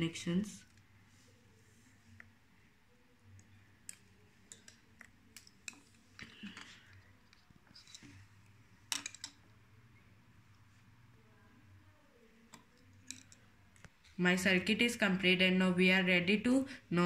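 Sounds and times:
wires clicking onto pins: 3.3 - 8.2, 8.9 - 9.4, 12.5 - 13.9.

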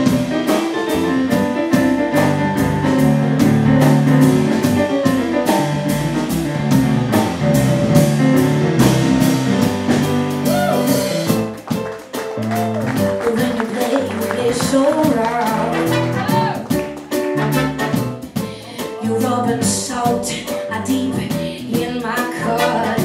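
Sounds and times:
drums: 0.0 - 23.0
jazz blues band playing: 0.0 - 23.0
upright bass: 0.0 - 23.0
trombone: 15.5 - 18.4, 22.4 - 23.0
trumpet: 15.6 - 18.3, 22.4 - 23.0.

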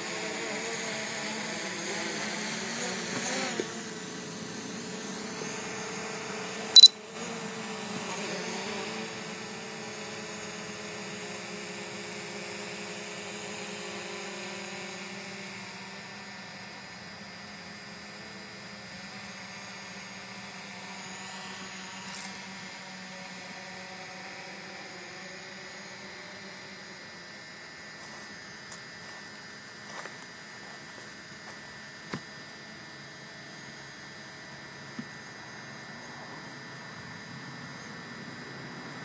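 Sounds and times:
drone propellers humming: 8.5 - 39.0.

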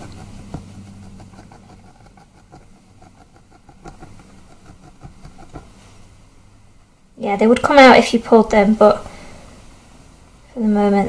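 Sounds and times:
felting needle jabbing wool: 0.0 - 6.0
low steady hum: 0.0 - 11.0.

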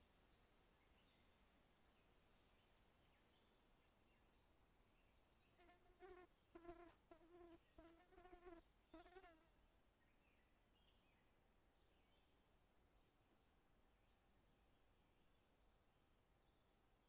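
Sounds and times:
flying insect buzzing: 5.6 - 9.5.

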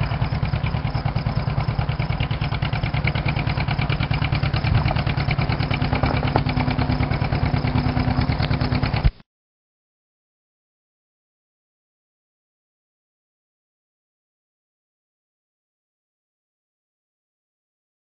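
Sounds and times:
tractor engine exhaust popping: 0.0 - 9.2.

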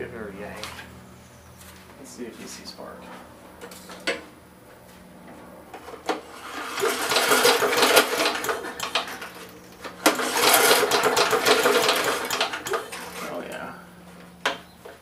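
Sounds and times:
lawn mower recoil starter pull: 5.8 - 13.5.

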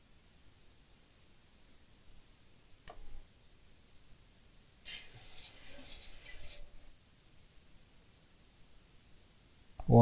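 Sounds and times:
aerosol spray hissing: 4.9 - 6.6.

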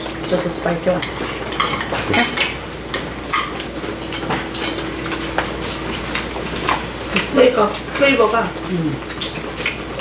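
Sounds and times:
dishes and utensils clinking: 0.0 - 5.5.

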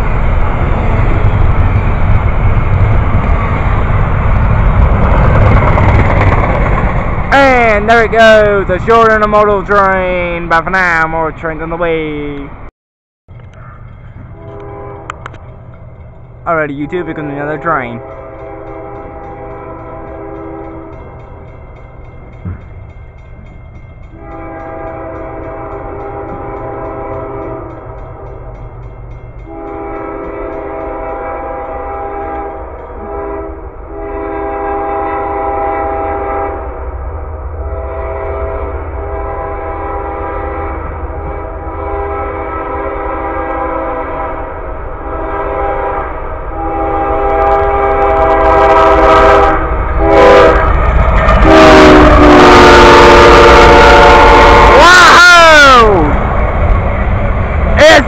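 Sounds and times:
train rumble: 0.0 - 12.7, 13.3 - 58.0
train air horn blasts: 14.3 - 15.4, 16.8 - 21.1, 24.1 - 28.4, 29.4 - 36.8, 37.6 - 50.8, 51.4 - 56.1.

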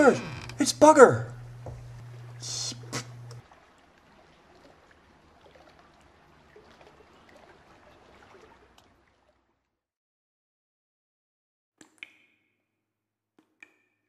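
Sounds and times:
water trickling and lapping: 1.3 - 9.8.

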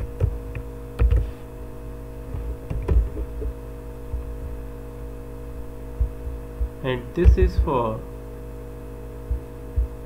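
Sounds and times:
computer keyboard typing: 0.0 - 1.3
steady electrical hum: 0.0 - 10.0.

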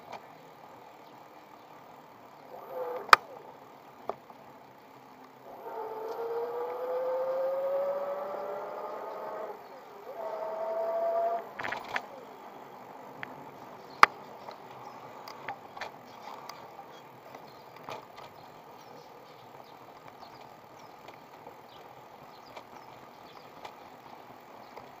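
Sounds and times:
electric bicycle riding rumble: 0.0 - 25.0
small clicks and rattles: 11.3 - 12.1, 14.0 - 25.0.

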